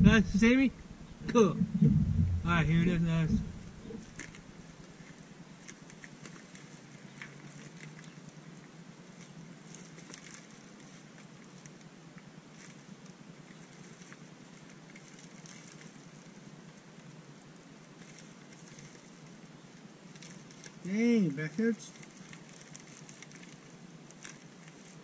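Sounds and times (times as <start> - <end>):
plastic packaging crinkling: 4.0 - 8.3, 9.6 - 11.9, 13.5 - 16.4, 18.0 - 19.2, 20.1 - 20.9, 21.8 - 25.0.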